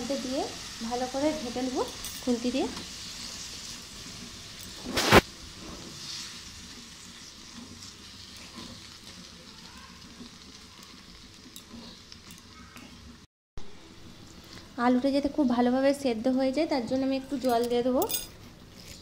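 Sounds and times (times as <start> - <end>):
masala sizzling in a pan: 0.0 - 19.0
wooden spatula scraping pan: 7.4 - 8.9.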